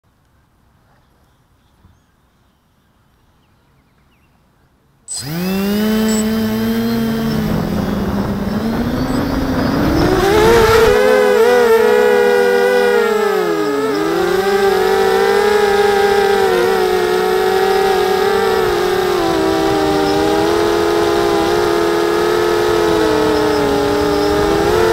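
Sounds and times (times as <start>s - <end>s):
quadcopter motors whining: 5.1s - 24.9s.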